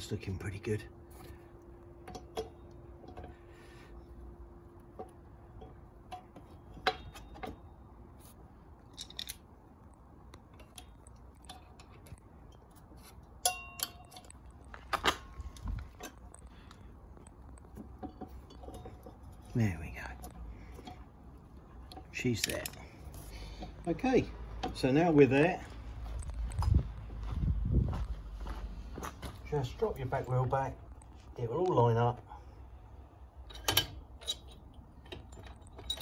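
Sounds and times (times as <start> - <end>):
motorcycle wheel parts clicking: 4.8 - 7.8, 8.8 - 9.5, 10.3 - 19.5, 20.2 - 23.9
ringing metallic clink: 13.4 - 14.3.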